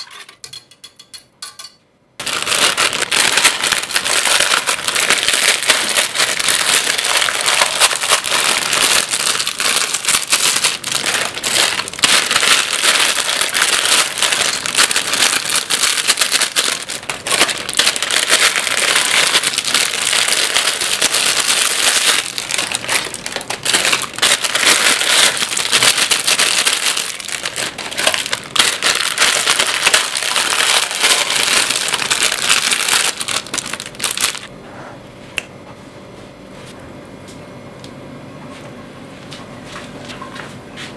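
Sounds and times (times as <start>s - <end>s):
plastic packets crinkling: 2.2s - 34.5s.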